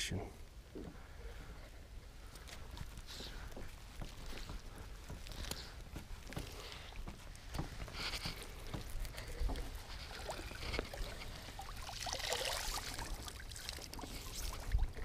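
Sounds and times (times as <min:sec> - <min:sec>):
water pouring off net: 0:10.0 - 0:15.0.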